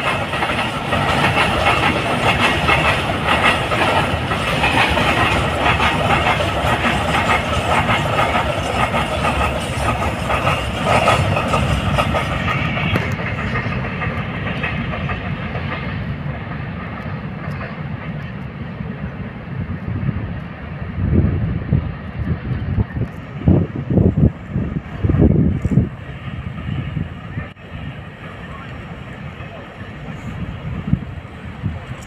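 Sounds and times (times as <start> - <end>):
wheels clattering over rail joints: 0.0 - 18.4
freight train rolling past: 0.0 - 32.0.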